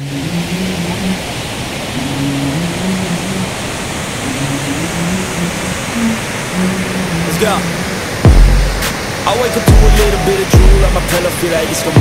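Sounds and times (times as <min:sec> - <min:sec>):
waterfall roaring: 0:00.0 - 0:12.0
low held musical notes: 0:08.3 - 0:11.1.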